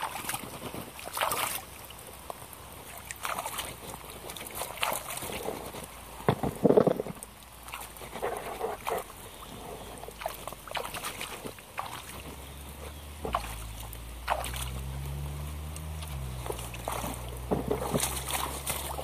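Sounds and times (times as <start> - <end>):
boots splashing through mud: 0.0 - 5.4, 10.1 - 19.0
low steady hum: 0.0 - 19.0.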